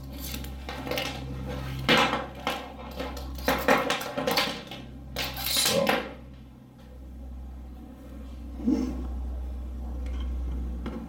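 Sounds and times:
cables rustling and clattering: 0.0 - 6.0.

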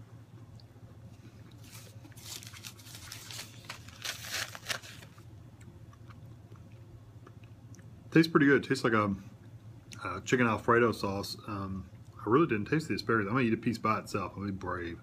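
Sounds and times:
faint low hum: 0.0 - 15.0
paper napkin rustling and crinkling: 1.6 - 5.2.

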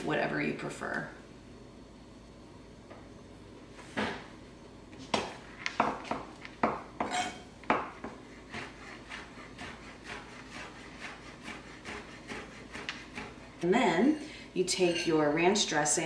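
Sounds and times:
knife chopping on cutting board: 5.1 - 13.5.

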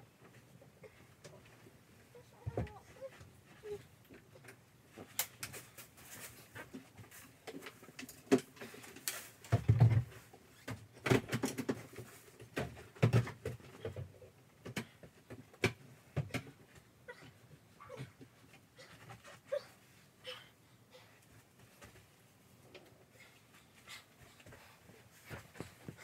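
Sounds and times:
clicks and knocks of items: 4.0 - 16.7
clothes rustling: 4.8 - 10.7.

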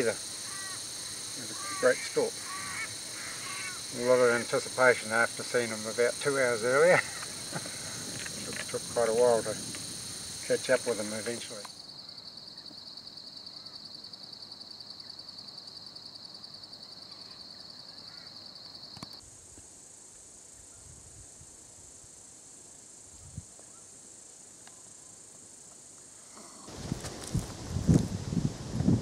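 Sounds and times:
insects trilling: 0.0 - 29.0
steady insect hiss: 0.0 - 29.0.

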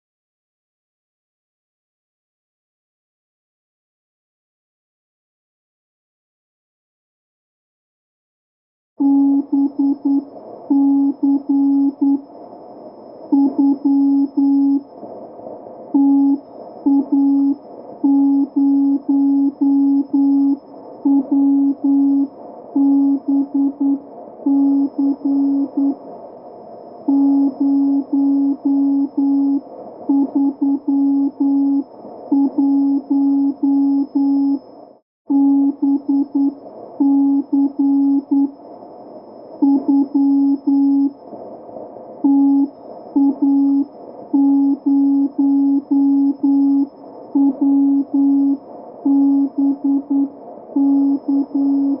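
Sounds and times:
low electronic tone beeping: 9.0 - 15.1, 15.9 - 26.0, 26.6 - 41.4, 42.2 - 52.0.

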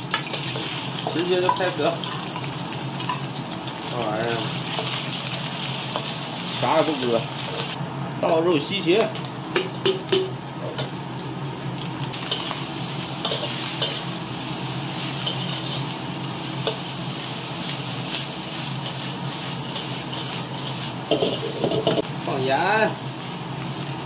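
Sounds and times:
vegetables sizzling in a wok: 0.0 - 24.0
metal spatula scraping a wok: 13.2 - 14.2, 15.0 - 16.0, 18.1 - 22.0.

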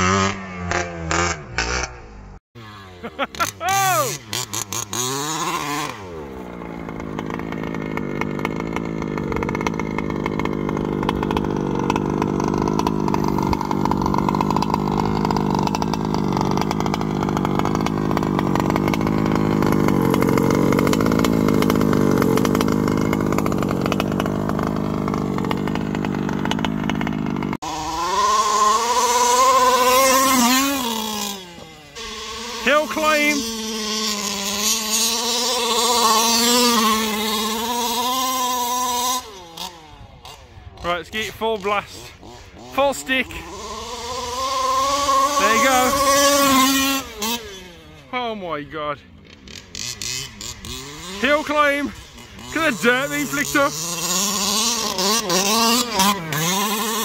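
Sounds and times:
two-stroke engine of rc truck: 0.0 - 57.0.

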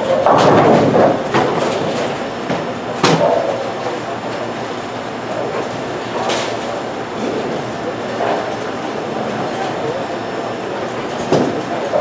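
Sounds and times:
bowling balls rolling down lanes: 0.0 - 3.7.

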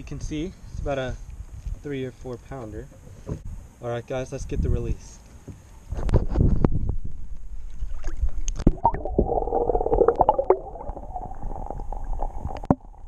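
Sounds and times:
water gurgling against kayak: 7.7 - 13.0.

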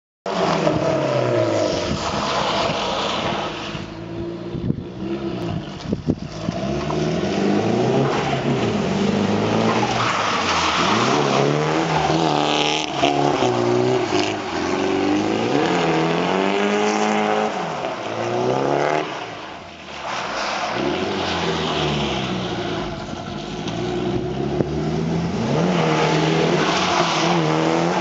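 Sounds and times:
car engine revving: 20.7 - 28.0.

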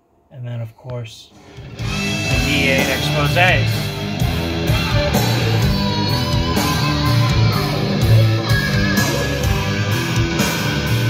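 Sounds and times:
rock music with electric guitar: 1.4 - 11.0.

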